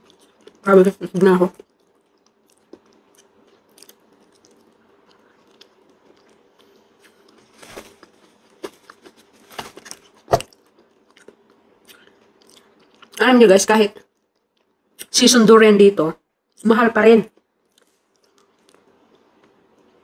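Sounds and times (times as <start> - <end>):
person chewing: 0.0 - 0.6, 1.6 - 13.2, 17.4 - 20.0.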